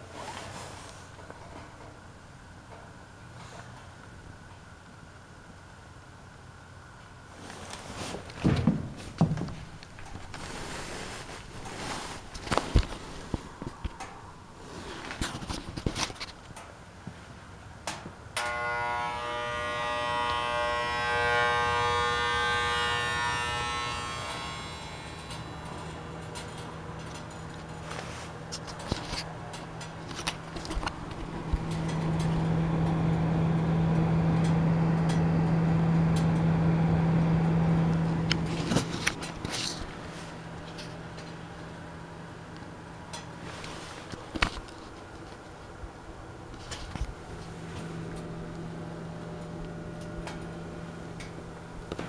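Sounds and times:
heater low hum: 0:00.0 - 0:52.0
heater switch click: 0:17.8 - 0:18.6
whine of even tones: 0:18.4 - 0:28.2.

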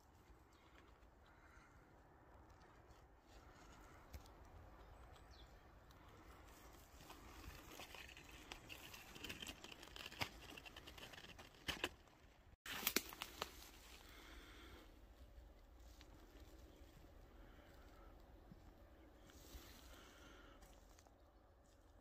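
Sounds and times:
twigs snapping underfoot: 0:12.7 - 0:13.8.

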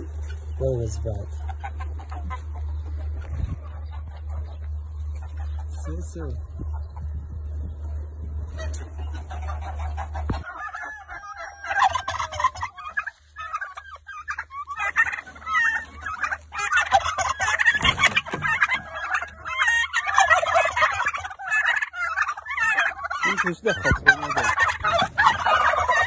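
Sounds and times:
turkeys gobbling: 0:00.0 - 0:26.0
low rumble: 0:06.3 - 0:10.5.

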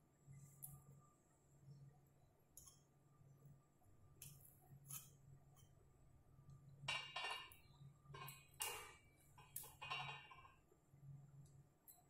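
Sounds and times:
faint metallic clicks and scrapes: 0:02.6 - 0:02.9, 0:04.2 - 0:05.8, 0:06.5 - 0:10.6, 0:11.4 - 0:12.0.

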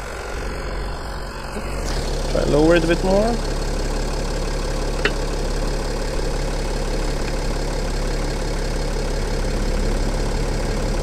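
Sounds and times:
air compressor hum: 0:00.0 - 0:08.3
diesel engine idling: 0:00.0 - 0:11.0.

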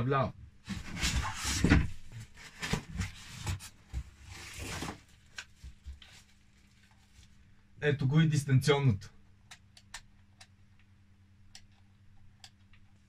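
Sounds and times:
packaging rustling and crinkling: 0:00.7 - 0:07.4.

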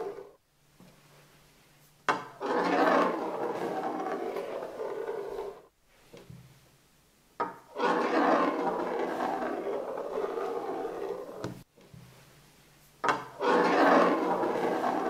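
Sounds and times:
metal ball rolling on tabletop: 0:00.0 - 0:00.4, 0:02.1 - 0:05.7, 0:07.4 - 0:11.6, 0:13.0 - 0:15.0.

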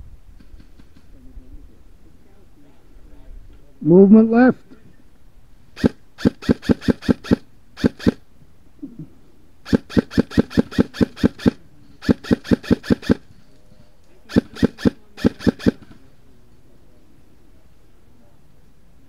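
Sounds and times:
airsoft rifle shots: 0:05.8 - 0:08.2, 0:09.6 - 0:13.3, 0:14.3 - 0:16.0.

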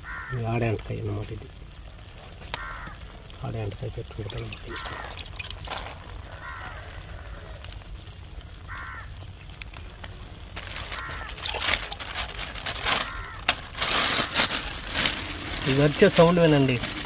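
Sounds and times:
bird calling: 0:00.0 - 0:00.4, 0:02.5 - 0:03.1, 0:04.3 - 0:07.6, 0:08.6 - 0:09.2, 0:10.9 - 0:12.0, 0:12.9 - 0:13.6
crackling clicks and rustles: 0:00.0 - 0:17.0.

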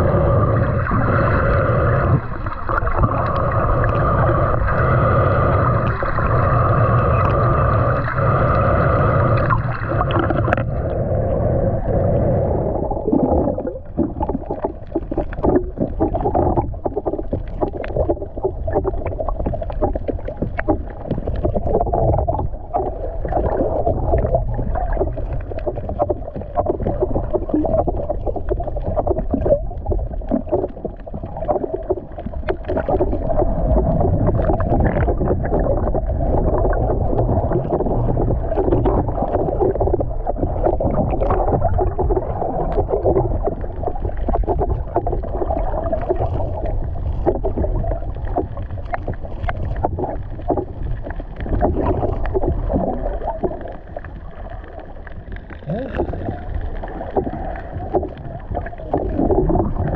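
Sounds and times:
muffled underwater water rush: 0:00.0 - 0:59.9
small underwater clicks and crackles: 0:00.0 - 0:59.9.

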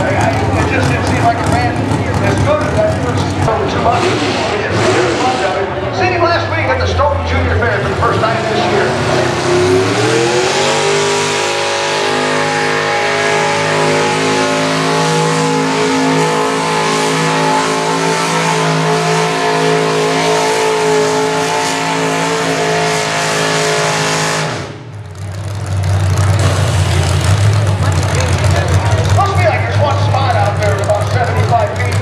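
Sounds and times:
tractor engine at full throttle: 0:00.0 - 0:32.0.

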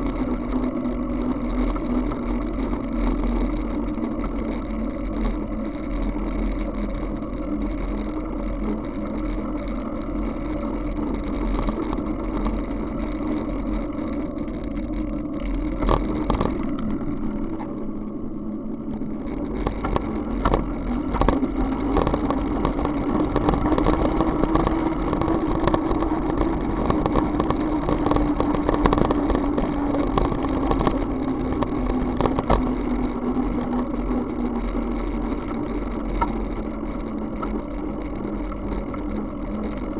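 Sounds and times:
bicycle ride noise on wet asphalt: 0:00.0 - 0:39.9
wind rumble on microphone: 0:00.0 - 0:39.9
small rattles and knocks: 0:08.8 - 0:17.9, 0:19.0 - 0:39.9.

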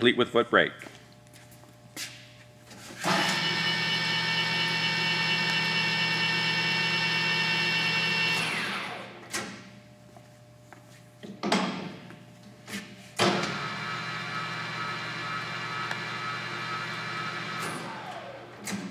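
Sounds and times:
lathe headstock whining: 0:03.1 - 0:09.2.

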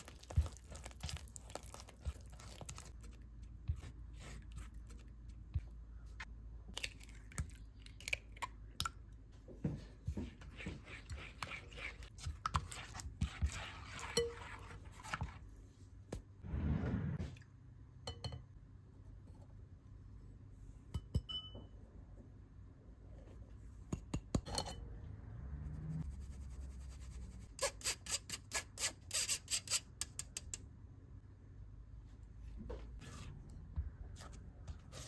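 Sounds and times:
scrape on bowl: 0:10.6 - 0:15.4.

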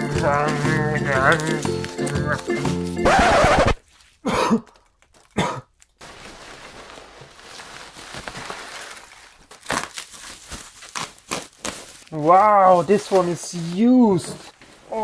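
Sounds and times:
bubble wrap crinkling: 0:00.0 - 0:15.0
packing peanuts rustling: 0:00.0 - 0:15.0
person clearing throat: 0:00.3 - 0:05.8.

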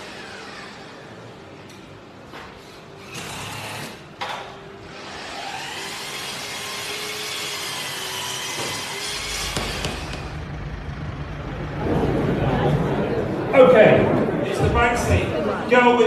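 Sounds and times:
steady hum: 0:08.8 - 0:15.8.

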